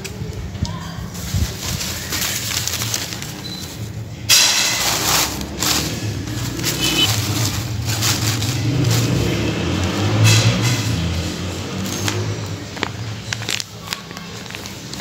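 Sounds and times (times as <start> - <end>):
tissue paper crinkling: 1.1 - 3.9, 4.8 - 9.5, 12.8 - 15.0.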